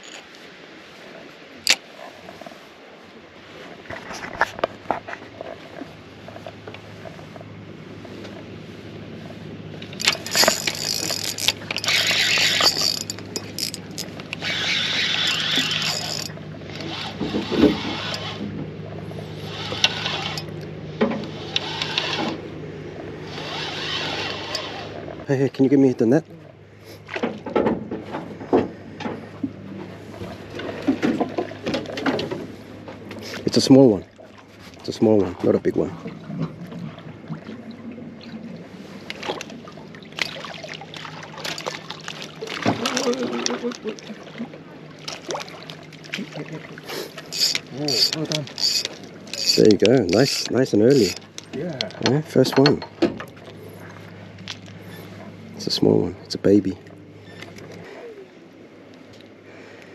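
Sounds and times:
faint steady hum: 0:00.0 - 0:59.9
water splashing and sloshing: 0:00.0 - 0:59.9
clicks and knocks from fishing gear: 0:03.9 - 0:07.5, 0:09.8 - 0:18.6, 0:40.2 - 0:44.1, 0:47.2 - 0:53.6, 0:54.4 - 0:54.8
fishing reel whirring: 0:09.9 - 0:18.5, 0:19.1 - 0:20.7, 0:21.3 - 0:22.5, 0:23.2 - 0:25.2, 0:46.9 - 0:51.4.

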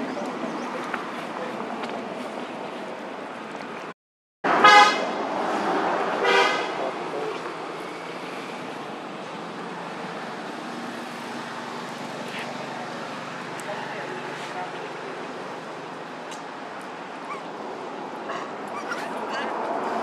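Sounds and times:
outdoor background noise: 0:00.0 - 0:20.0
vehicle horn toots: 0:04.6 - 0:05.1, 0:06.2 - 0:06.8.

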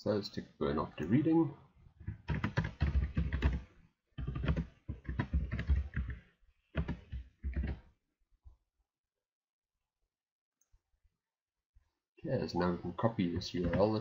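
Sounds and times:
typing on computer keyboard: 0:02.0 - 0:07.8.

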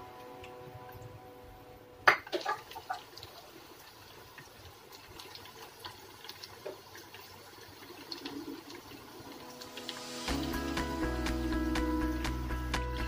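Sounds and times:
chicken frying in hot oil: 0:02.0 - 0:12.3.

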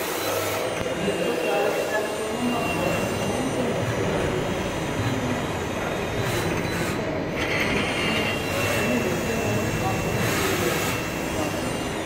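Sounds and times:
lathe spindle whirring: 0:00.0 - 0:12.0.

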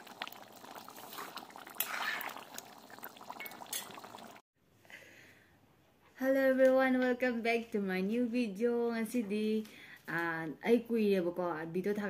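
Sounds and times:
curry bubbling in a pot: 0:00.0 - 0:04.4.

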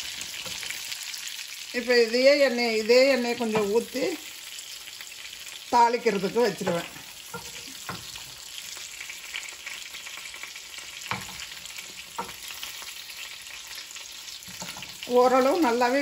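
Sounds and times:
chicken sizzling in hot oil: 0:00.0 - 0:16.0.

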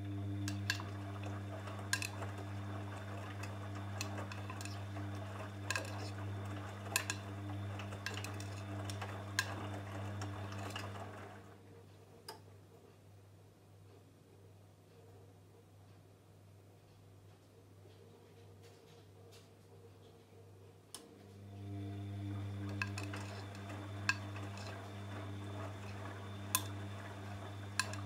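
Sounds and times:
washing machine motor hum: 0:00.0 - 0:11.9, 0:21.0 - 0:28.0.

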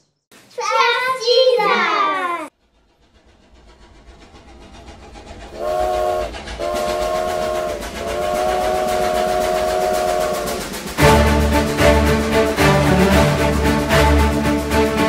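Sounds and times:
steam locomotive chuffing: 0:01.2 - 0:15.0
steam whistle blasts: 0:05.5 - 0:15.0.

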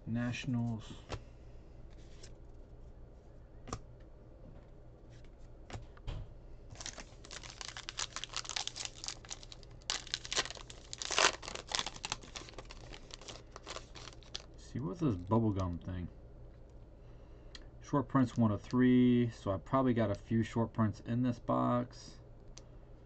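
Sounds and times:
wrapper crackling: 0:06.7 - 0:14.5.

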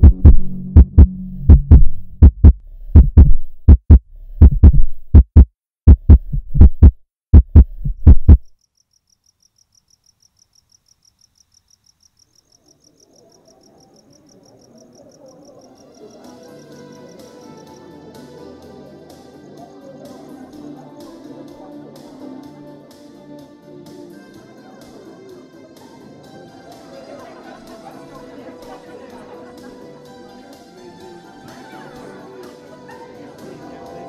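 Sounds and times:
heartbeat thumps: 0:00.0 - 0:08.5
soft music: 0:16.0 - 0:34.0.

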